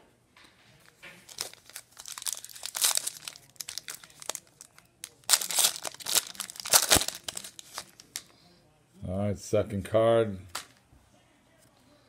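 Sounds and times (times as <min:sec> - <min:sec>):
foil pack crinkling and tearing: 0:01.3 - 0:08.2.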